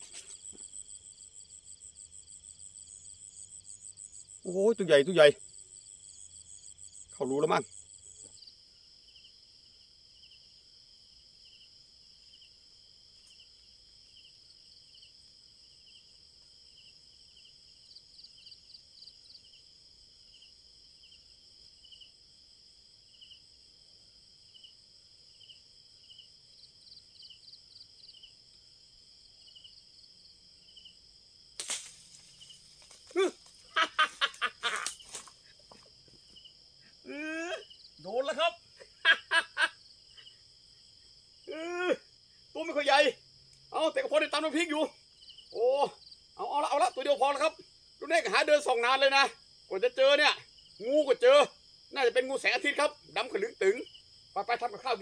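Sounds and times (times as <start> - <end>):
crickets chirping: 0.0 - 55.0
sharp crack: 31.6 - 35.4.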